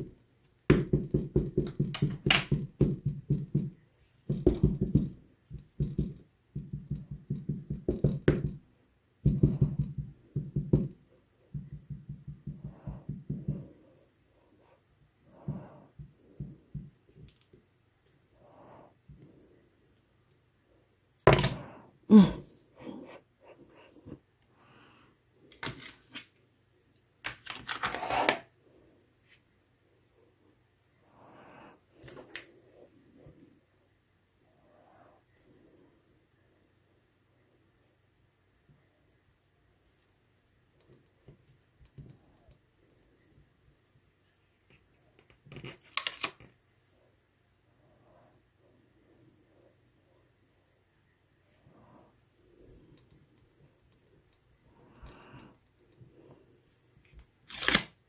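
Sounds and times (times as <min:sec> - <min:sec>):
ink pad tapping on plastic: 0:00.7 - 0:08.6, 0:09.2 - 0:13.7.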